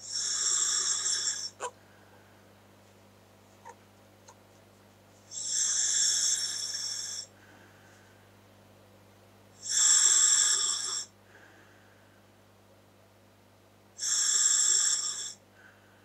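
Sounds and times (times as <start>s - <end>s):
scuba regulator breathing hiss: 5.3s - 7.3s.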